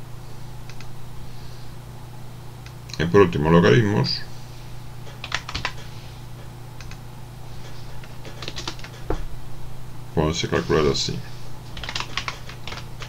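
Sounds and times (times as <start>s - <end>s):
steady low hum: 0.0s - 13.0s
typing on keyboard: 5.2s - 5.8s, 8.2s - 9.0s, 11.7s - 13.0s.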